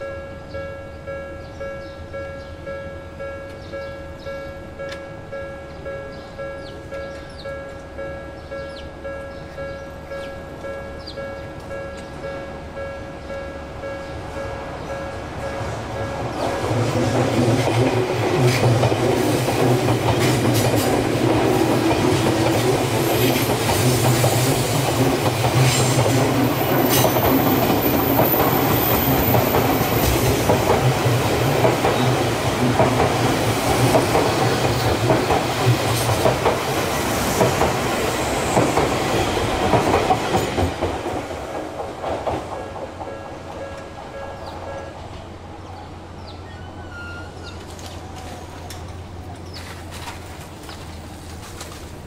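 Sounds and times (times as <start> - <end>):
train wheels rumbling: 0.5 - 52.0
clickety-clack over rail joints: 15.5 - 45.3, 47.0 - 52.0.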